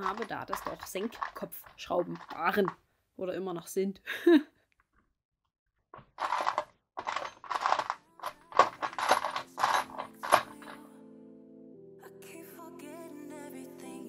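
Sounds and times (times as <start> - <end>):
scraping wooden parts by hand: 6.0 - 10.6
soft background music: 7.6 - 14.0.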